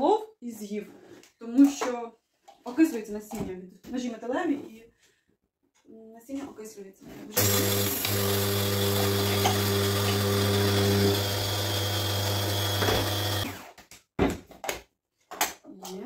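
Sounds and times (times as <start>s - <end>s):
coffee grinder motor hum: 7.4s - 13.6s.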